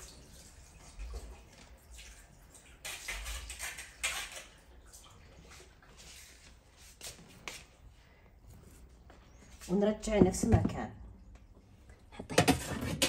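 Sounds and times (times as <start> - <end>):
water splashing and dripping: 0.0 - 7.9.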